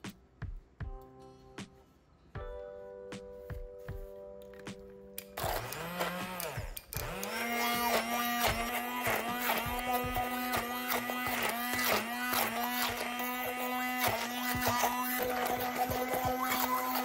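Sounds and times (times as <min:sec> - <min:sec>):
chopping and spattering food: 0:05.4 - 0:17.0
immersion blender motor hum: 0:05.4 - 0:17.0.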